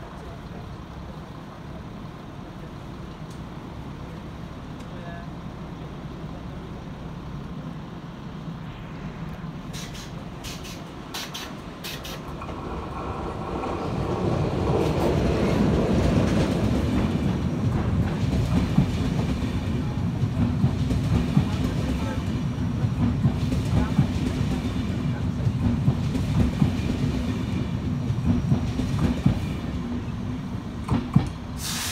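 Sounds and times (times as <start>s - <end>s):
train rolling past: 0.0s - 31.9s
short high clicks: 9.8s - 12.3s.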